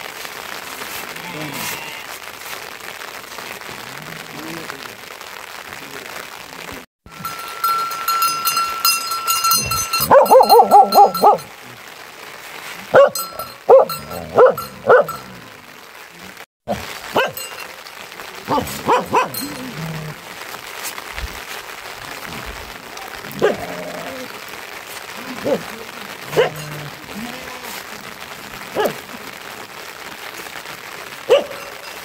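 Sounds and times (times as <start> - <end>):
dog barking and yelping: 9.3 - 11.5, 12.9 - 15.3, 16.8 - 17.6, 18.5 - 19.9, 23.4 - 23.9, 26.3 - 26.8, 28.8 - 29.0, 31.3 - 32.0.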